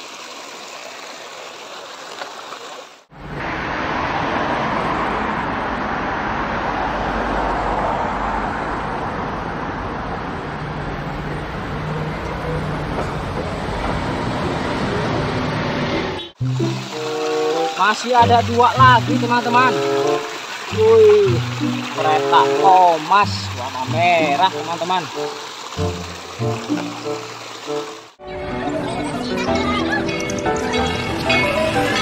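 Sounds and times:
creek flowing: 0.0s - 5.4s, 10.6s - 32.0s
street traffic: 3.0s - 32.0s
bus engine rumble: 8.2s - 16.7s.

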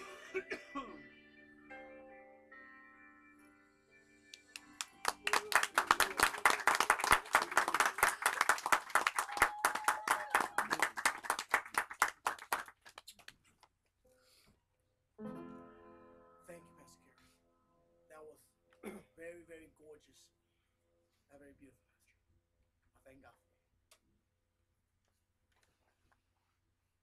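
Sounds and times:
crowd clapping: 4.3s - 13.4s.

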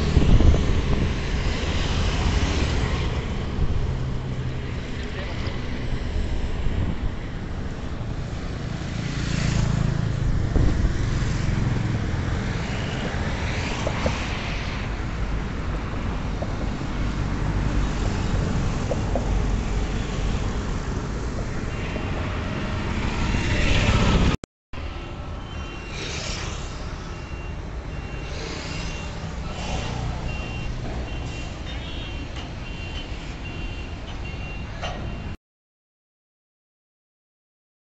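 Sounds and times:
traffic engine rumble: 0.0s - 35.4s
vehicles passing: 0.0s - 35.4s
reversing alarm beeps: 25.4s - 35.4s.

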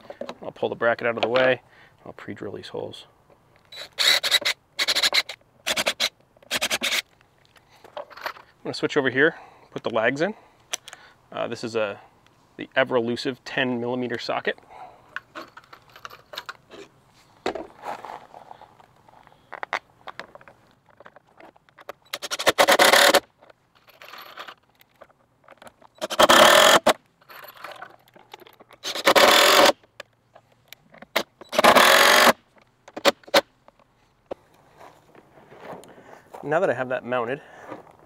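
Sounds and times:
cordless drill driving bolts: 3.7s - 7.1s, 22.0s - 23.3s, 25.9s - 27.8s, 28.7s - 29.8s, 31.1s - 33.4s.

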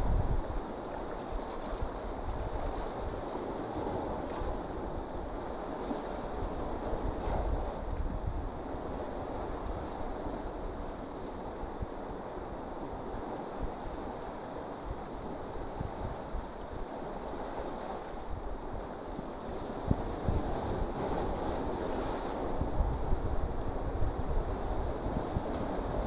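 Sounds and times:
wind buffeting microphone: 0.0s - 0.7s, 6.3s - 10.8s, 18.2s - 26.0s.

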